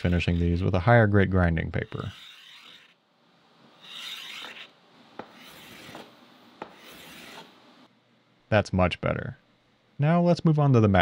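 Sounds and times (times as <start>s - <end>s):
metal scraping on abrasive paper: 0.0s - 0.8s, 1.8s - 3.0s, 3.8s - 6.1s, 6.7s - 7.6s.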